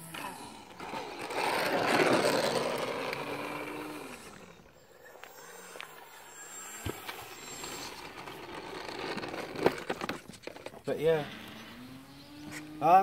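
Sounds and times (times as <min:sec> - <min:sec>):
electric motor whine: 0:00.0 - 0:09.7, 0:11.2 - 0:13.0
whir: 0:00.0 - 0:13.0.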